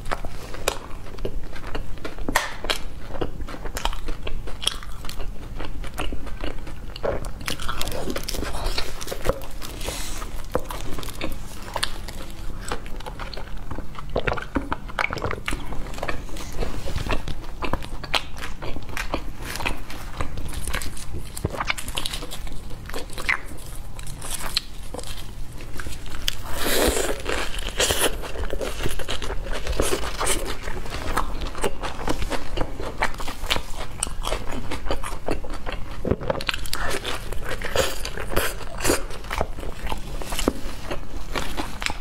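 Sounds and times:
chewing toasted bread: 0.0s - 42.0s.

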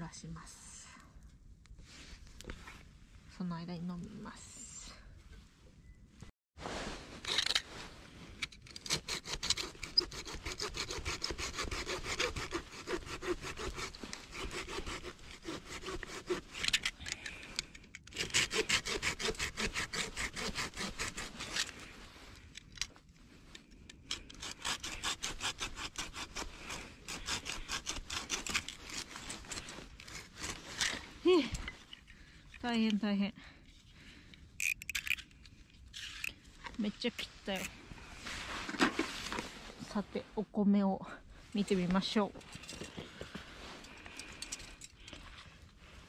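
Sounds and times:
hand saw cutting wood: 8.7s - 16.9s, 18.1s - 21.8s, 24.1s - 31.1s.

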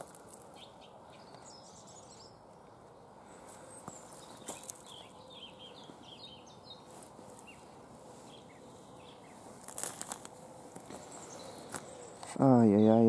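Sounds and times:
small birds chirping: 0.0s - 13.0s
boot crunching on ice: 3.9s - 5.0s, 9.5s - 11.9s.

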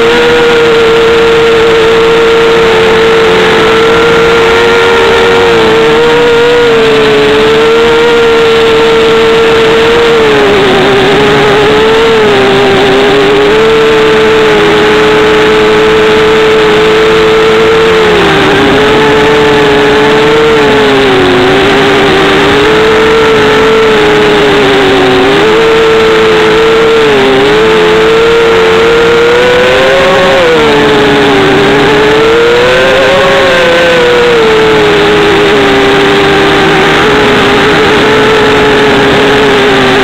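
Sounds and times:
quadcopter motors buzzing: 0.0s - 40.0s.

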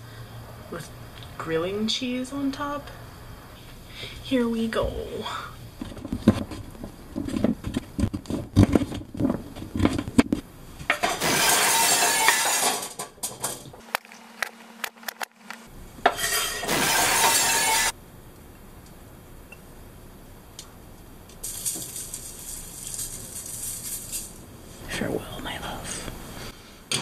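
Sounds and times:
rustling and clattering: 5.8s - 13.8s, 21.3s - 24.4s.

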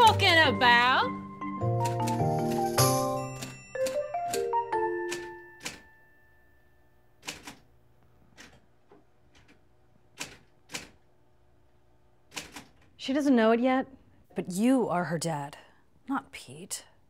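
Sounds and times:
typewriter keys clacking: 1.8s - 5.9s, 7.2s - 7.6s, 10.2s - 11.0s, 12.3s - 12.9s.

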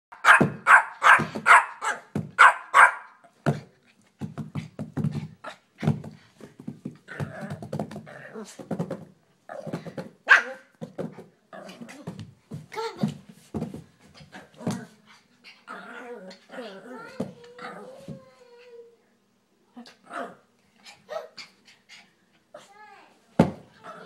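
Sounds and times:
puppy barking: 0.1s - 3.2s, 10.3s - 10.7s
puppy low noises: 23.8s - 24.0s.

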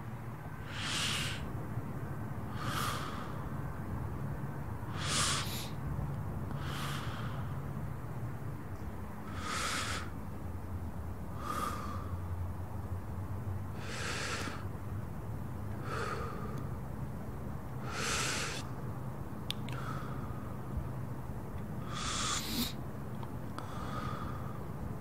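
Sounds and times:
low steady hum: 0.0s - 25.0s
short breathy hisses: 0.6s - 1.5s, 4.9s - 5.8s, 6.6s - 7.5s, 9.3s - 10.2s, 13.8s - 14.6s, 17.9s - 18.7s, 21.8s - 22.8s.

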